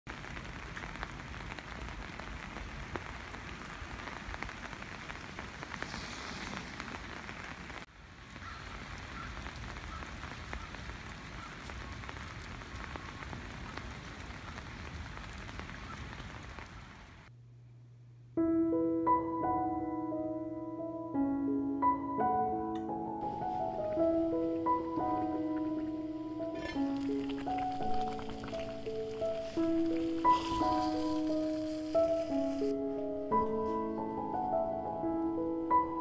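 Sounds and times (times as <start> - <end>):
rain on foliage: 0.1 - 17.3, 23.2 - 33.4.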